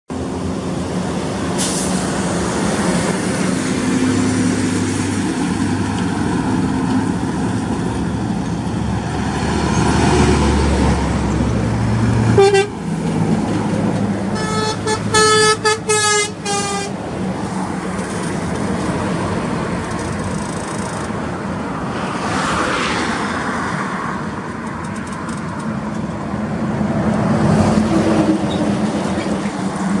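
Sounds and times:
diesel trucks passing: 0.1s - 30.0s
truck air horn: 12.3s - 12.8s, 14.3s - 17.0s.

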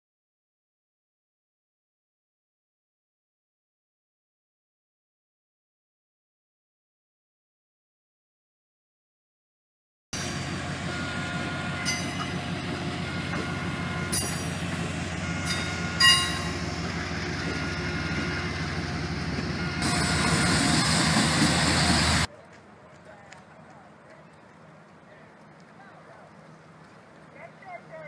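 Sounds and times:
train rumbling: 10.2s - 28.0s
metallic clanks: 11.8s - 14.7s, 15.4s - 17.7s
high-pitched wheel squeals: 15.3s - 16.7s.

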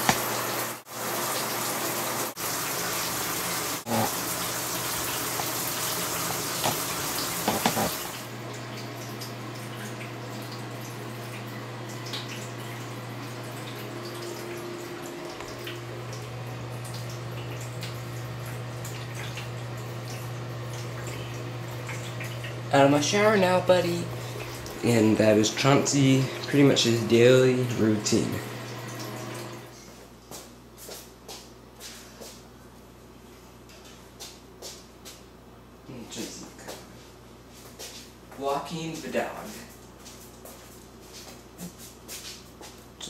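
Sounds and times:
running water: 0.0s - 29.7s.

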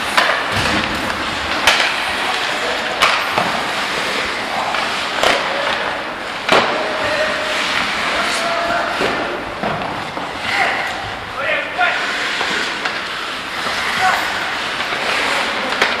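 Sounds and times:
sharp cracks of hockey sticks: 0.0s - 8.4s, 12.1s - 16.0s
skate blades scraping ice: 0.0s - 16.0s.

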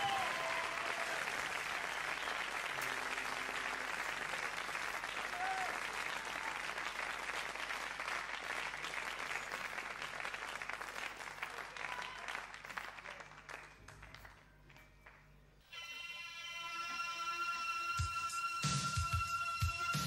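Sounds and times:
audience applauding: 0.0s - 15.2s.

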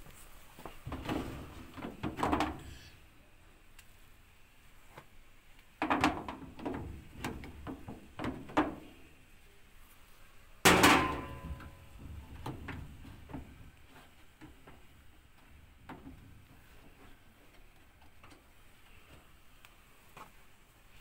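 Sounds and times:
metal knocks and clunks: 5.8s - 8.9s, 10.7s - 13.8s
loud metallic clang: 10.7s - 11.8s.

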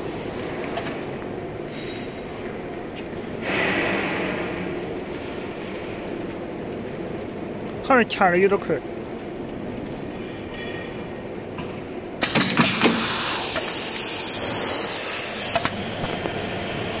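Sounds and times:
extrusion machine running: 12.2s - 17.0s
loud air hiss: 12.4s - 15.7s.

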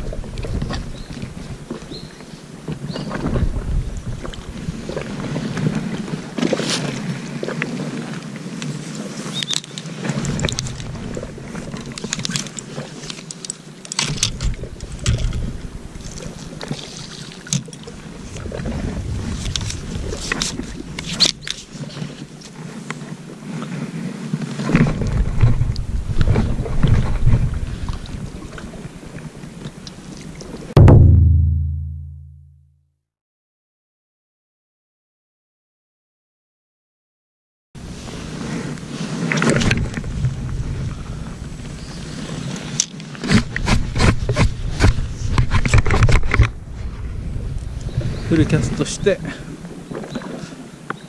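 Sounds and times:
wind buffeting microphone: 2.9s - 5.9s, 18.0s - 21.0s, 24.8s - 28.6s, 43.7s - 49.8s
fishing reel clicks and rustles: 8.9s - 17.9s.

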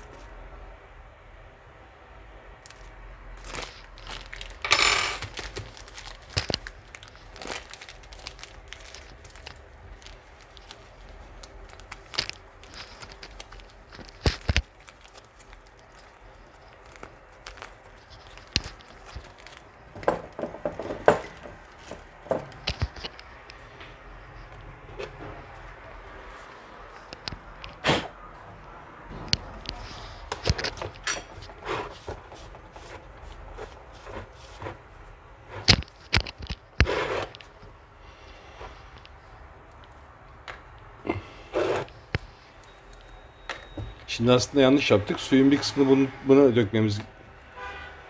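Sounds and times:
plastic bag rustling: 2.7s - 27.8s, 29.4s - 37.7s.

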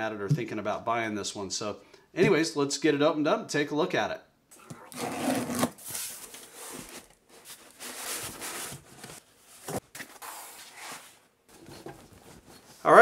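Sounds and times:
cardboard box being opened: 4.8s - 12.6s
packaging rustling: 4.8s - 12.8s.

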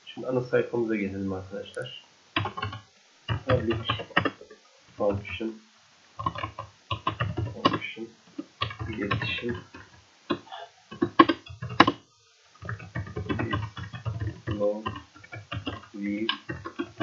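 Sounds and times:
low muttering voice: 0.0s - 2.8s, 3.4s - 5.6s, 6.2s - 12.0s, 12.7s - 17.0s
typing on computer keyboard: 2.4s - 4.4s, 6.2s - 7.8s, 8.6s - 12.0s, 12.6s - 17.0s.

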